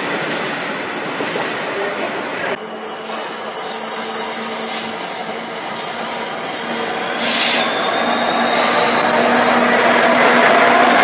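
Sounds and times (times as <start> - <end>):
diesel locomotive engine: 0.0 - 11.0
faint high wheel squeal: 2.6 - 11.0
train wheels on rails: 2.8 - 11.0.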